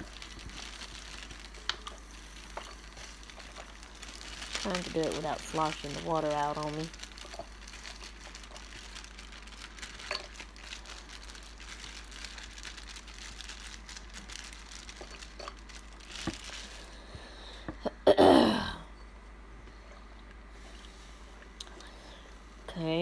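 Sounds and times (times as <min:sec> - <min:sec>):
rustling plastic bag: 0:00.0 - 0:17.1
woman clearing her throat: 0:17.8 - 0:18.8.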